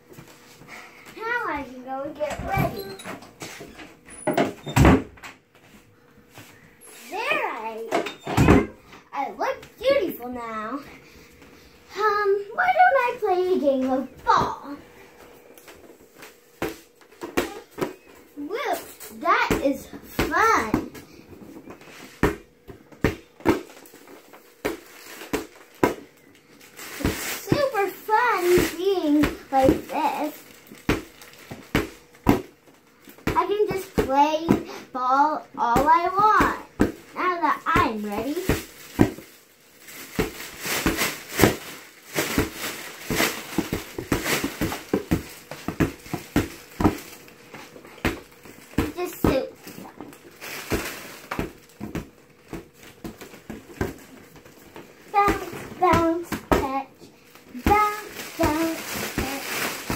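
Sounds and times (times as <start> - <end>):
hands slapping inflatable ball: 19.3 - 26.2, 26.8 - 34.8, 35.7 - 39.3, 39.9 - 59.9.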